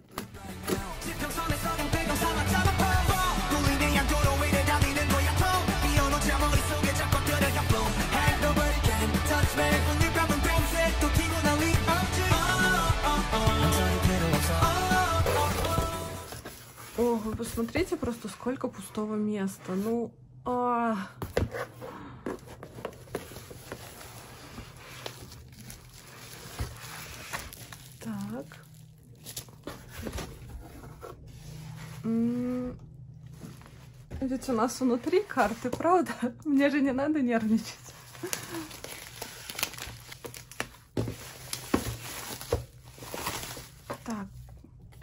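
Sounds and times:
cardboard box packing rustling: 14.6 - 18.4, 21.2 - 28.4, 29.2 - 32.3, 37.6 - 44.3.

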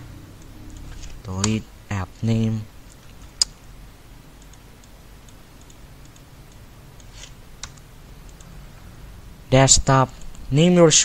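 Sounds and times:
low room hiss: 0.0 - 11.0
computer mouse and keyboard clicks: 0.4 - 1.6, 4.4 - 8.6.

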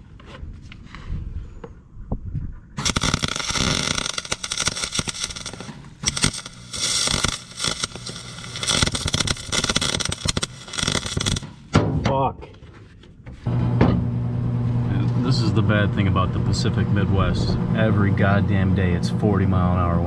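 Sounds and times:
welder arc crackling: 2.8 - 11.7.

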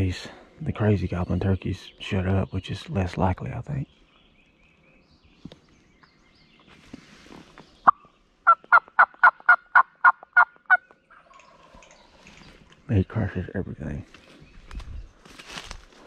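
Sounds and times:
turkey call yelping: 7.9 - 11.3.

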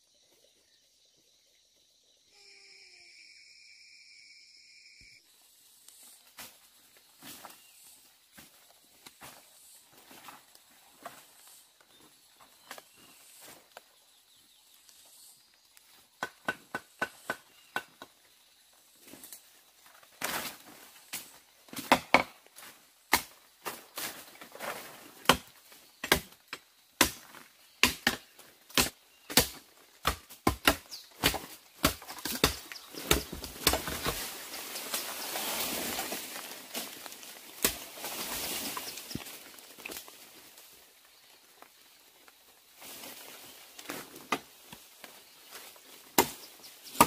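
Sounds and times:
blade chopping bamboo: 27.8 - 34.2, 46.2 - 47.0.

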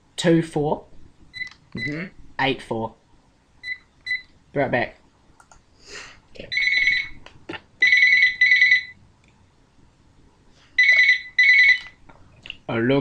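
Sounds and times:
faint clicks: 5.4 - 5.6.

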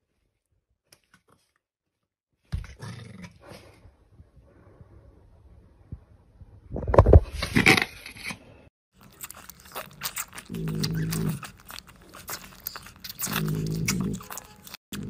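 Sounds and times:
puppy wet sucking and smacking: 9.0 - 15.0.

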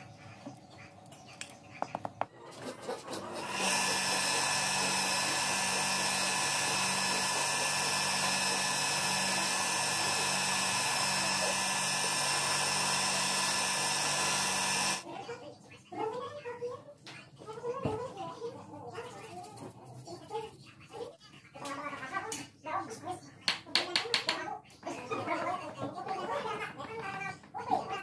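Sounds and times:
sanding wheel whining and grinding: 3.0 - 15.0.

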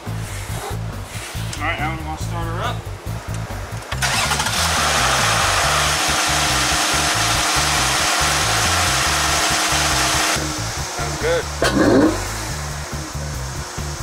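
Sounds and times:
engine air intake rushing: 3.3 - 14.0.

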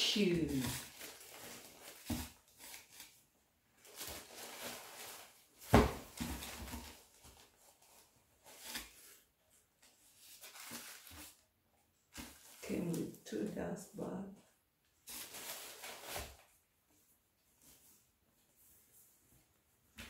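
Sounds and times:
tissue paper and fabric rustling: 0.0 - 11.4, 15.0 - 19.6.

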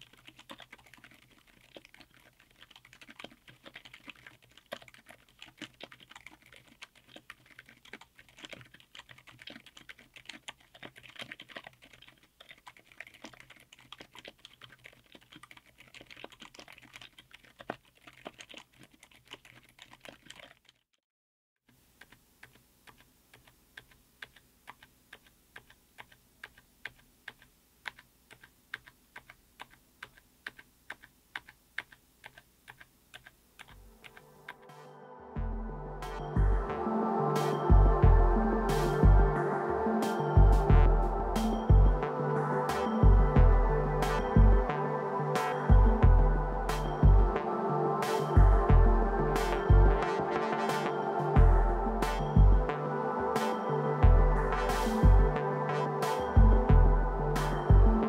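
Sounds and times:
quiet mechanical keyboard typing: 0.0 - 20.9, 21.7 - 34.8.

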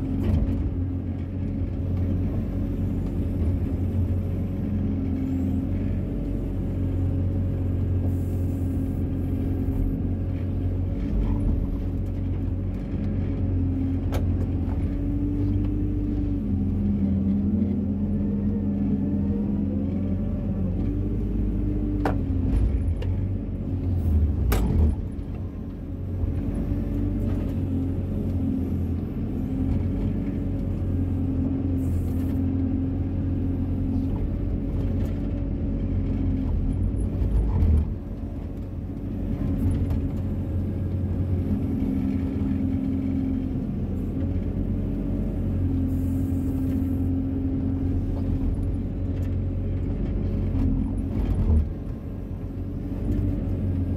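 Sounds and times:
excavator diesel engine: 0.0 - 53.9.

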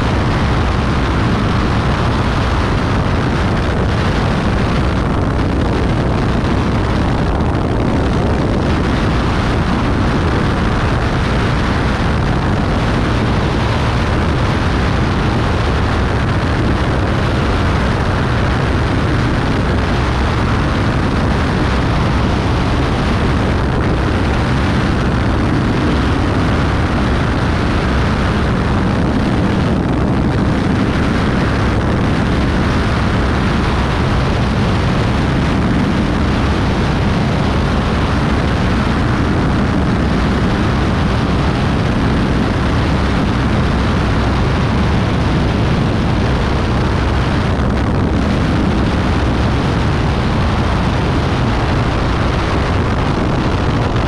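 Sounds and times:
aircraft engine and propeller: 0.0 - 54.0
wind rushing over camera: 0.0 - 54.0.

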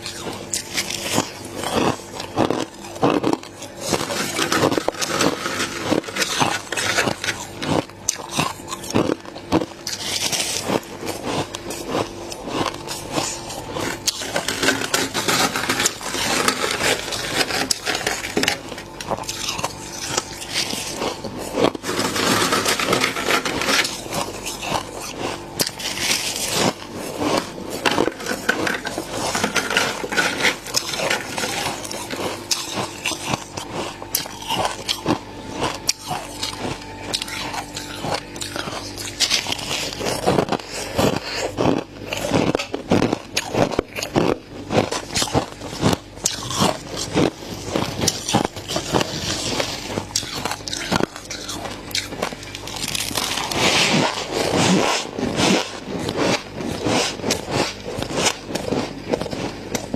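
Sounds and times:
frost crunching and crackling: 0.0 - 59.9
scraping frost off freezer wall: 0.0 - 59.9.

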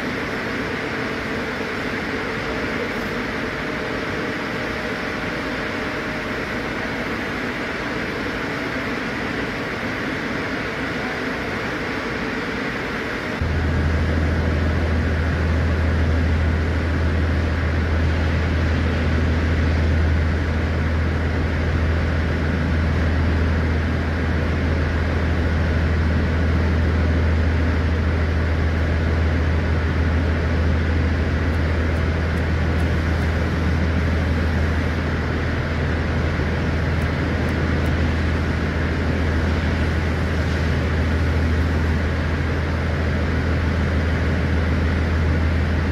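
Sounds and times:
low machine drone: 0.0 - 45.9.

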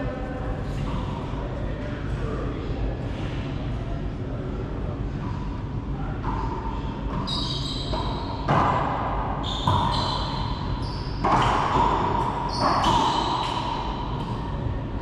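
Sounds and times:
racquets striking ball: 6.2 - 14.5
shoes squeaking on hardwood floor: 7.2 - 8.4
ball smacking court walls: 9.6 - 10.3, 11.1 - 14.4.

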